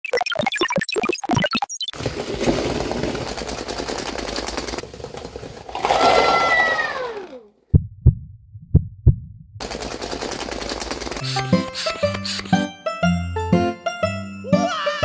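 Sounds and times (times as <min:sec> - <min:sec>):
plastic cups knocked over: 0:02.1 - 0:06.9.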